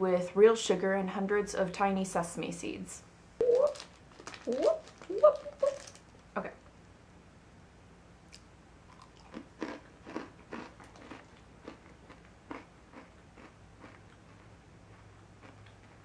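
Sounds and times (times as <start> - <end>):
mouth crunching brittle: 3.4 - 6.1, 8.3 - 16.0.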